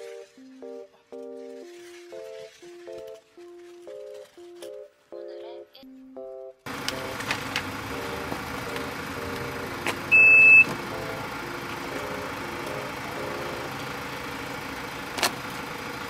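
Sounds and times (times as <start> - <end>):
steady background hum: 6.7 - 15.9
electronic beep: 10.1 - 11.1.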